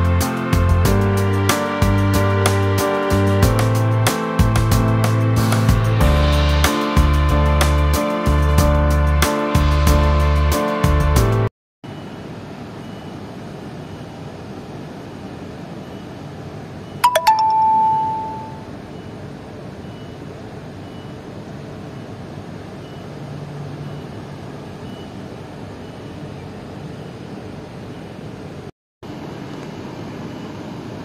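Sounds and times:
bell-like ding: 17.0s - 18.6s.

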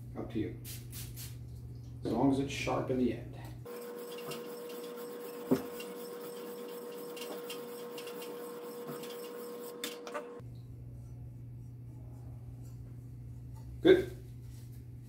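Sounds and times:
whetstone scraping blade edge: 3.9s - 10.4s.

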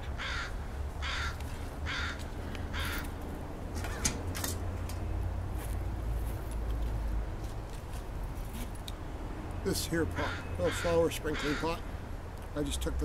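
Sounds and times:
crow cawing: 0.1s - 3.1s, 3.8s - 4.1s, 10.1s - 11.9s.

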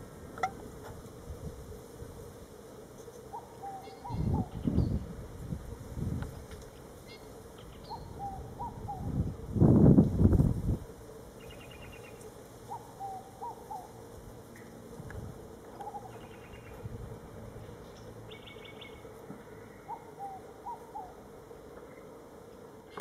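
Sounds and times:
birds calling: 3.2s - 5.1s, 6.6s - 9.2s, 11.4s - 14.0s, 15.7s - 16.8s, 17.8s - 21.2s.

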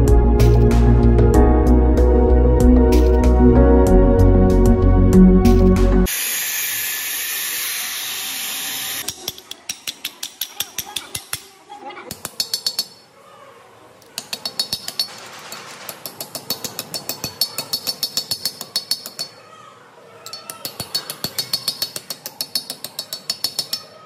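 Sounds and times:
hammer striking steel on anvil: 16.0s - 19.4s.

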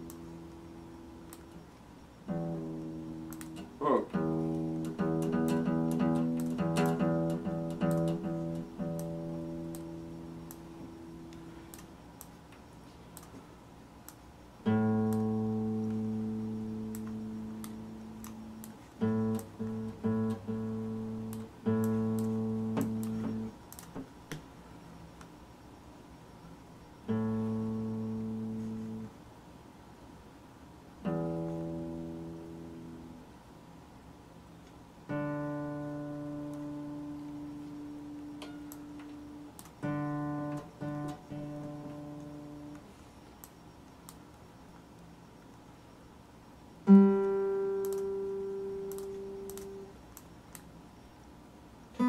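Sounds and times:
guitar tuning peg turning: 2.3s - 9.9s
acoustic guitar chords strummed: 2.3s - 11.4s, 14.6s - 23.6s, 27.1s - 29.1s, 31.0s - 33.2s, 35.1s - 42.8s, 46.9s - 49.9s
acoustic guitar notes plucked: 2.3s - 11.4s, 14.6s - 23.6s, 31.0s - 33.1s, 35.1s - 42.8s, 46.9s - 49.9s.

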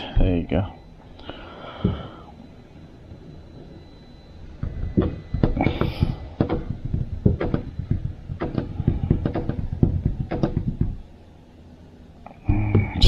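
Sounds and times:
quick knocks and bumps: 4.6s - 11.0s.

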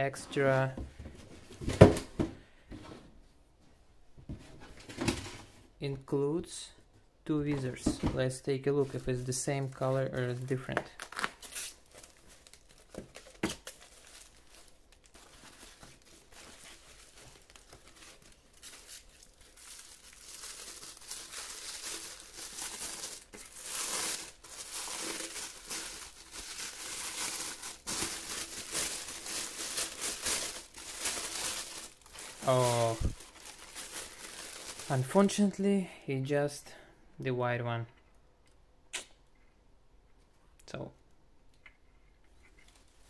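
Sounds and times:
packing wrap crinkling: 8.8s - 35.6s.

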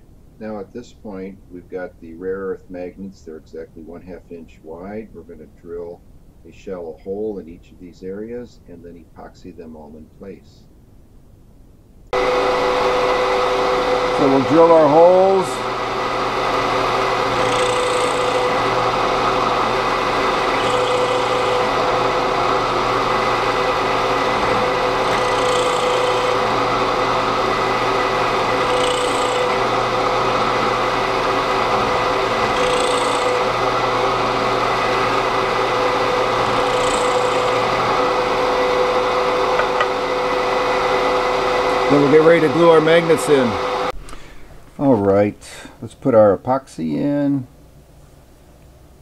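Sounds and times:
drill press running: 12.1s - 44.7s
drill bit scraping wood: 12.2s - 44.0s.

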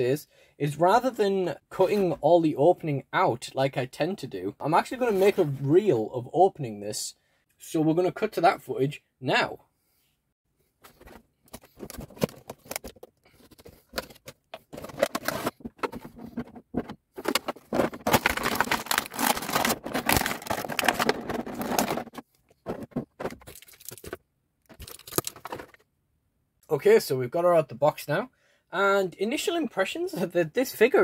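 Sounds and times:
plastic packaging rustling: 10.9s - 25.8s.

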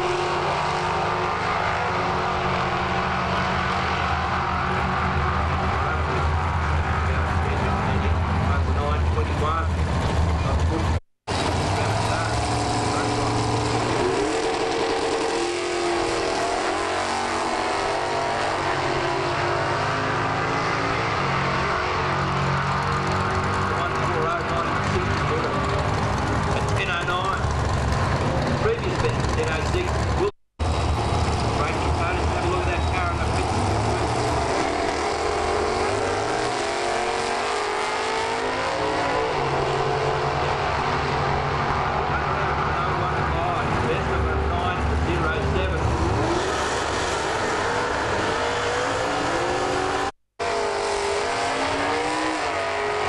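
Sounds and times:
drag racing cars accelerating: 0.0s - 53.0s.

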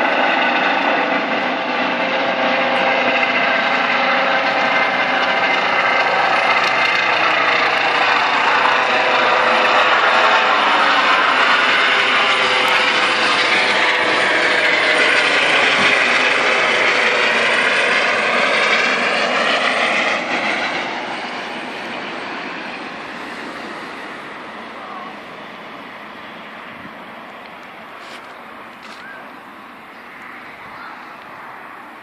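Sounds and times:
helicopter rotor and turbine: 0.0s - 32.0s.

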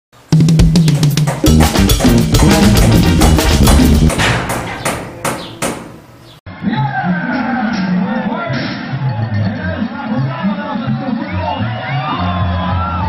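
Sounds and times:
music with heavy drum beat: 0.3s - 6.0s
drum hits: 0.3s - 6.3s.

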